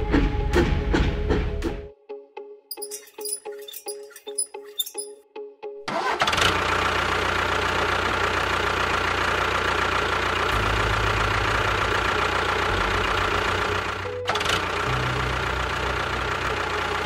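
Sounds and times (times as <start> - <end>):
tractor engine running: 5.9 - 17.0.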